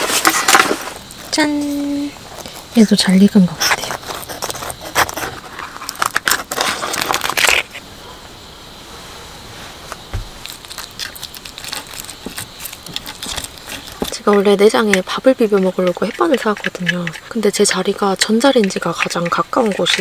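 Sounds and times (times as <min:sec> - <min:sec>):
crab shell cracking and snapping: 0:10.4 - 0:15.1.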